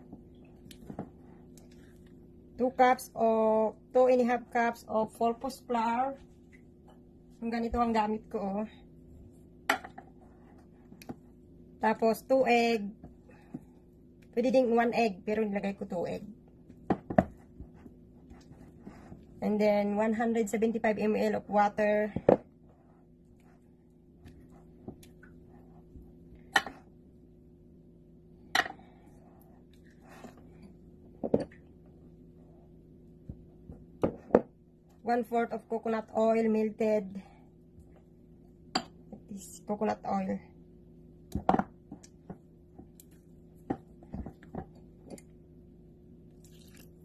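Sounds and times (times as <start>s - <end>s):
low hum: 0.0s - 47.0s
liquid pouring into batter: 46.4s - 47.0s.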